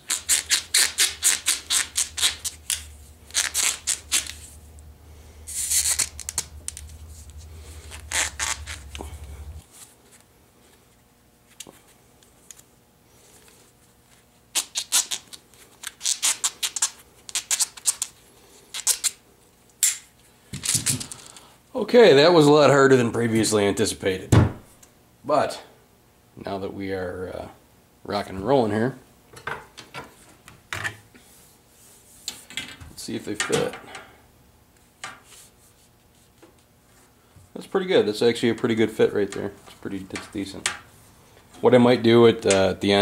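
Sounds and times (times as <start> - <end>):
faint low hum: 0.1 - 14.4
foam tubing scraping and squeaking: 7.0 - 9.2.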